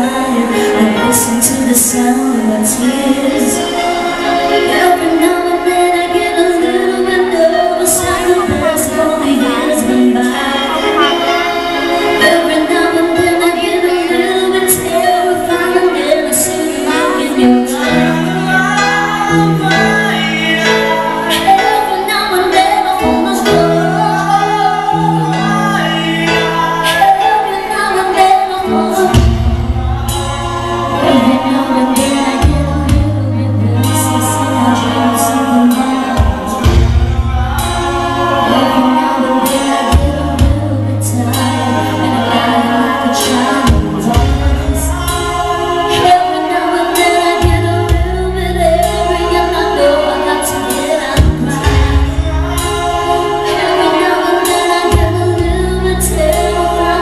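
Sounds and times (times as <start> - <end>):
musical accompaniment: 0.0 - 57.0
woman singing into microphone: 0.0 - 57.0
strong bass line: 28.9 - 42.3.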